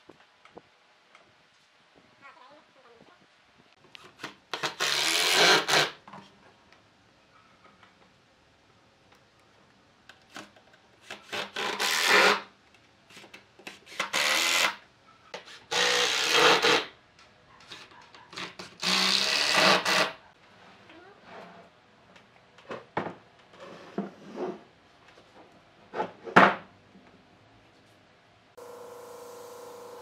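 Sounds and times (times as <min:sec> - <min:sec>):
cordless drill driving screws: 0:04.6 - 0:06.0, 0:15.7 - 0:16.9, 0:18.8 - 0:20.1.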